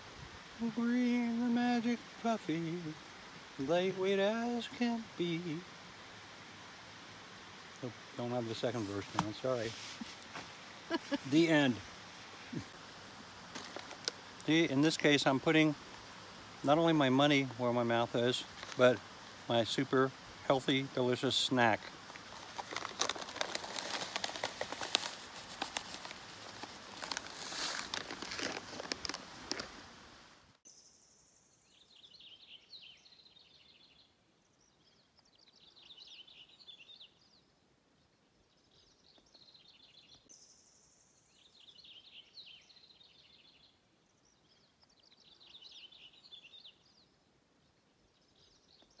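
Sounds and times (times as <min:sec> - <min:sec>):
chip bag crinkling: 0:22.1 - 0:29.8
chips being crunched: 0:22.2 - 0:29.8.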